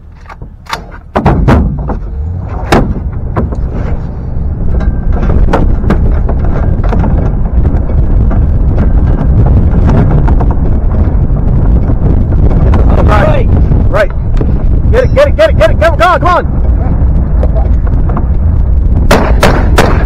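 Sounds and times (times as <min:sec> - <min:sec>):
truck driving noise: 0:00.0 - 0:20.0
wind rumble: 0:00.0 - 0:20.0
rifle shots: 0:19.1 - 0:20.0.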